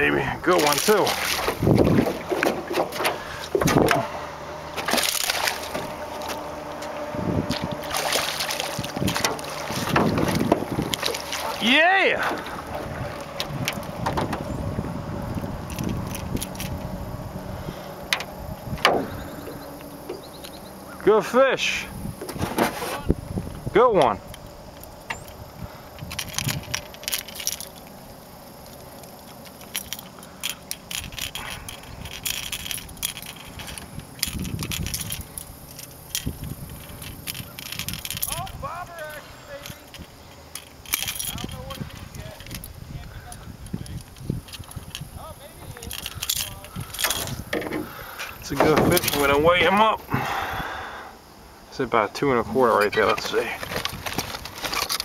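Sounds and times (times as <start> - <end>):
low steady background noise: 0.0 - 55.0
fish splashing in water: 0.6 - 3.6, 4.7 - 6.5, 7.5 - 14.0
wind noise on microphone: 1.2 - 2.4, 3.1 - 4.1, 6.9 - 11.3, 12.3 - 20.3, 21.8 - 27.6, 30.8 - 50.8, 52.8 - 55.0
fishing lure clicks and rattles: 28.6 - 38.6, 39.6 - 42.7, 43.8 - 47.4.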